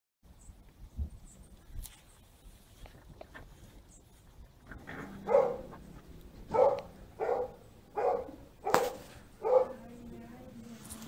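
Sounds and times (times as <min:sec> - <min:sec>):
puppy barking: 0:05.0 - 0:09.9.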